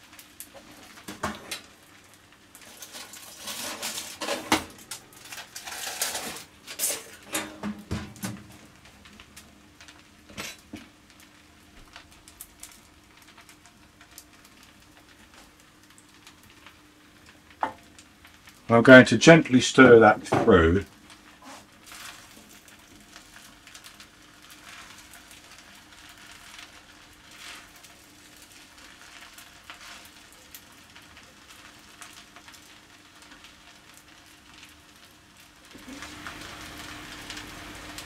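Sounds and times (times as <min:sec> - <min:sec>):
utensil clinking and scraping a pan: 0:02.6 - 0:07.9.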